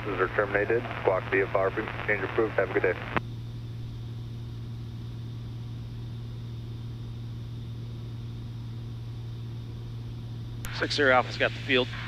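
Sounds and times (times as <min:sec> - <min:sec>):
airplane engine droning: 0:00.0 - 0:12.0.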